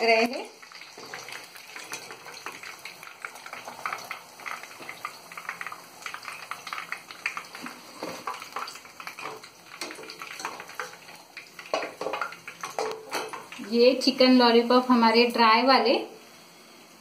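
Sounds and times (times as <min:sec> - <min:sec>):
oil sizzling deep frying: 0:00.0 - 0:17.0
wire skimmer tapping pan: 0:07.2 - 0:13.6.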